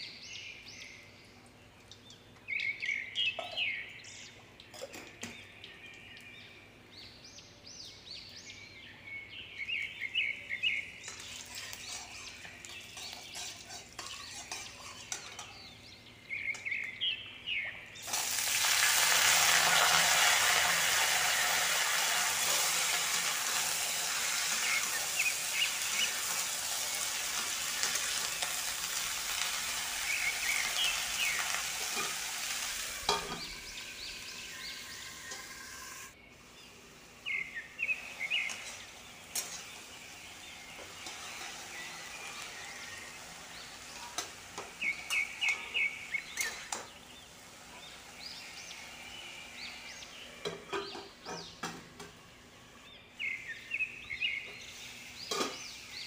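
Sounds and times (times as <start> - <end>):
birds chirping: 0.0 - 56.0
spatula scraping a pan: 11.1 - 15.7, 31.4 - 32.3, 40.8 - 43.2
vegetables sizzling in a pan: 18.0 - 52.4
metal lid clank: 33.1 - 33.5.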